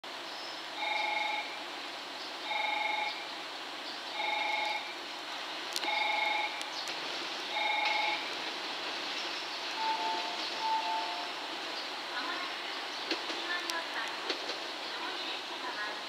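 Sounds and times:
short electronic warning beeps: 9.8 - 11.3.

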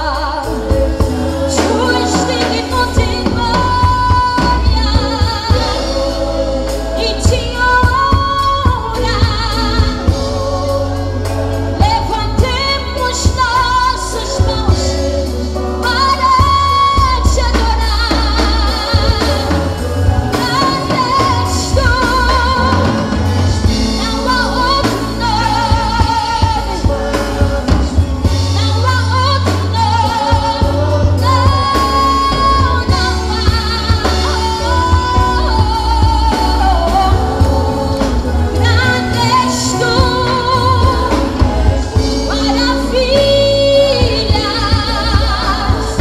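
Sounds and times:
bass: 0.0 - 46.0
drum kit: 0.0 - 46.0
worship band music: 0.0 - 46.0.

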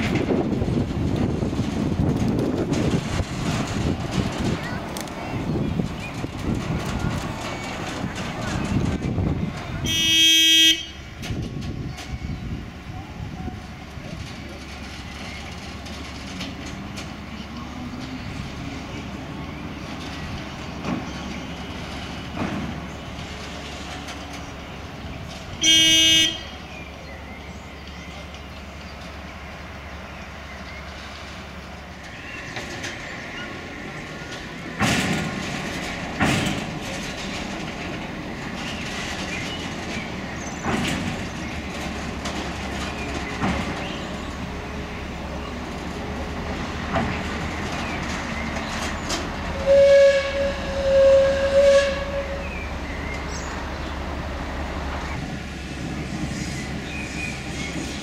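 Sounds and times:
wheels knocking over rail joints: 0.0 - 12.5, 13.6 - 26.8, 31.0 - 58.0
locomotive running slowly: 0.0 - 58.0
horn blasts: 9.8 - 11.2, 25.6 - 26.6, 49.5 - 52.6.

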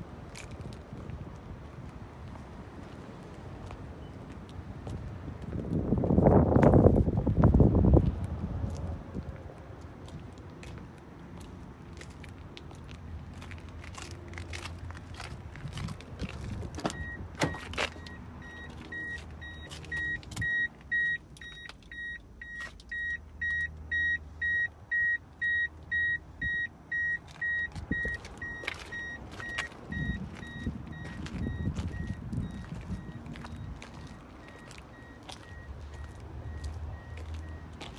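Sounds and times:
car warning chime beeping: 16.9 - 37.9.

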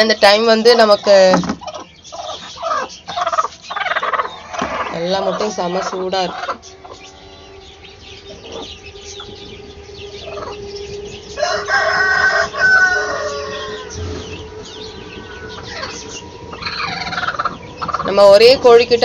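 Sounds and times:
faint high chirping: 0.0 - 19.0
chicken clucks: 1.4 - 7.1, 15.6 - 18.3
rooster crowing: 2.7 - 18.1.

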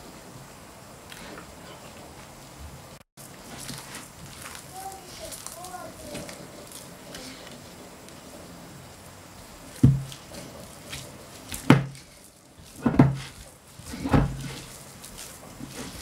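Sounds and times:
hands kneading dough: 0.0 - 16.0
bowl thumping on board: 9.8 - 10.1.

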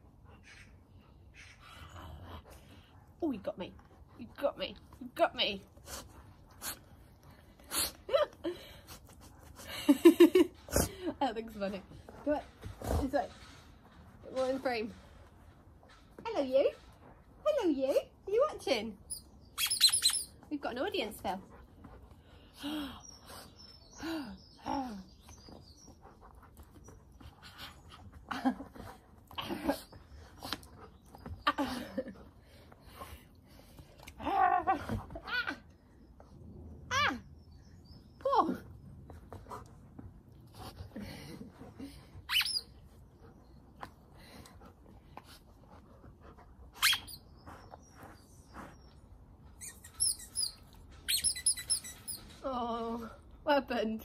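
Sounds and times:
squeaky toy squeaking: 19.1 - 20.4, 42.3 - 42.7, 46.8 - 47.2, 49.6 - 52.2.

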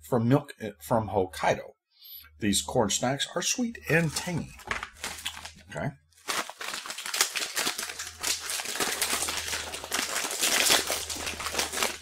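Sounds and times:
plastic bag crinkling: 4.0 - 12.0.

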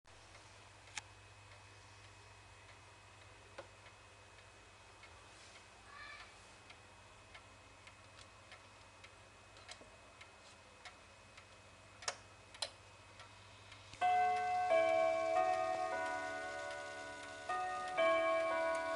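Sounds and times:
wall clock ticking: 10.9 - 18.9
clock chime striking: 14.0 - 18.9.

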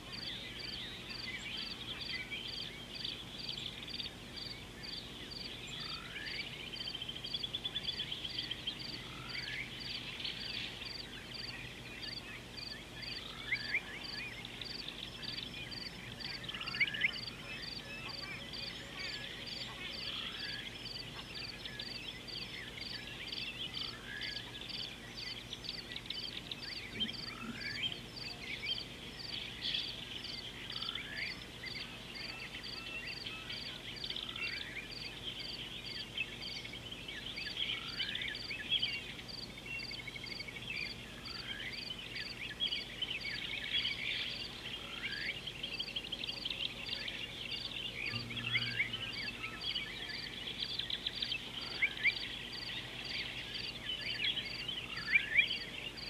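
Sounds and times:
frogs and insects calling: 0.0 - 56.0
high pulsing call: 48.1 - 50.2.

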